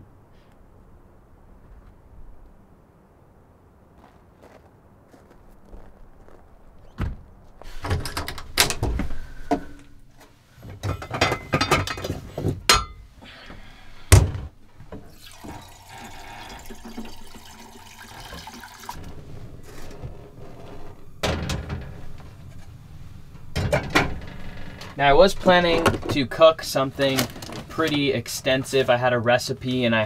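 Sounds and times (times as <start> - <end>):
pots knocking and clattering: 10.7 - 13.0
water pouring into a saucepan: 15.1 - 19.0.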